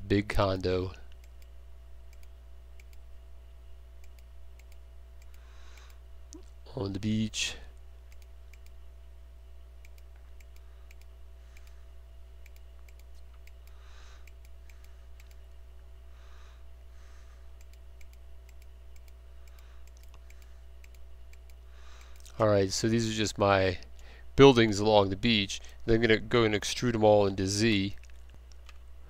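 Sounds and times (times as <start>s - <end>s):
low electrical hum: 0.0s - 29.0s
computer mouse clicking: 1.1s - 1.5s, 2.1s - 3.0s, 4.0s - 6.0s, 8.1s - 8.8s, 9.8s - 11.8s, 12.4s - 15.4s, 17.6s - 22.4s.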